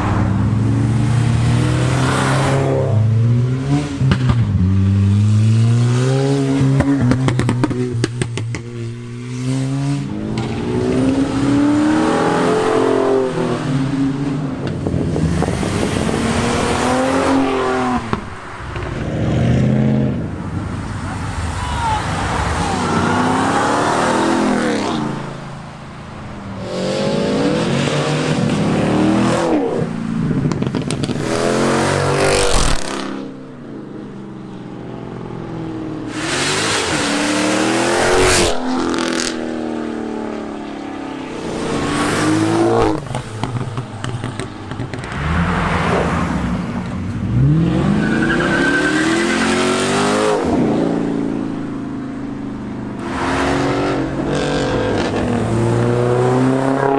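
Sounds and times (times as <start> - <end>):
cars accelerating past: 36.0 - 51.8, 52.6 - 56.9.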